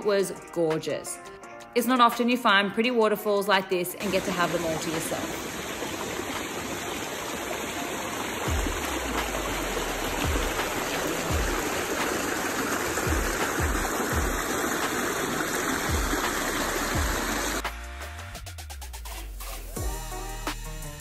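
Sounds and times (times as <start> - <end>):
creek water rushing over rocks: 4.0 - 17.7.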